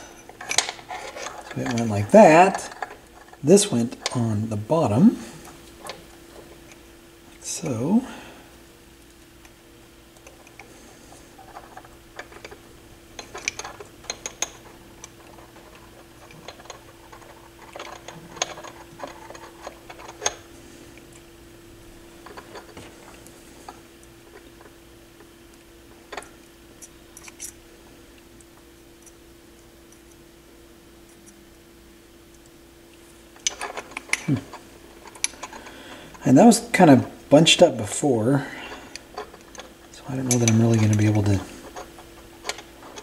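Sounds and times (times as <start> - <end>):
faint steady hum: 0.0 - 43.0
small clicks and taps of parts: 25.5 - 27.6.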